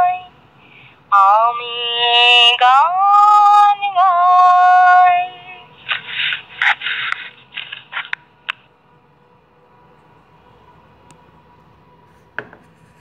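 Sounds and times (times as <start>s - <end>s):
woman singing: 0.0s - 0.3s, 1.1s - 5.7s
rustling: 5.8s - 8.6s.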